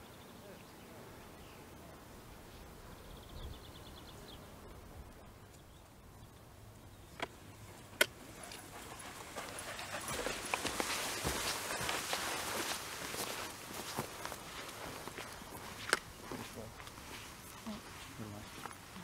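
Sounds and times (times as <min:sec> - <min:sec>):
footsteps on grass and stones: 0:08.3 - 0:19.0.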